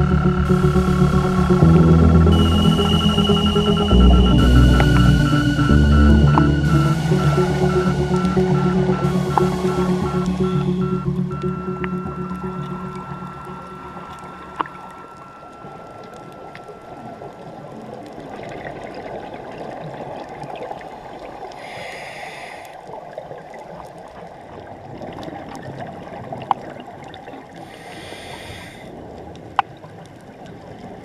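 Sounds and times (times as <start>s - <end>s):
underwater water gurgling: 0.0s - 31.0s
breathing bubbles: 27.6s - 29.0s.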